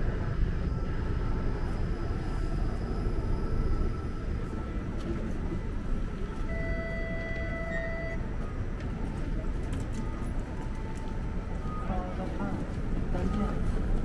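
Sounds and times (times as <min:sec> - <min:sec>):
faint high whine: 0:00.0 - 0:14.0
low street rumble: 0:00.0 - 0:14.0
streetcar drawing up and stopping: 0:00.0 - 0:14.0
electronic door tone: 0:06.4 - 0:08.7.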